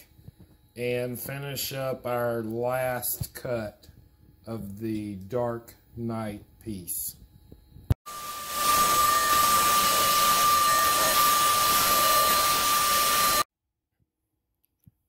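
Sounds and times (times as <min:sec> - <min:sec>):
router spindle high whine: 0:08.1 - 0:13.5.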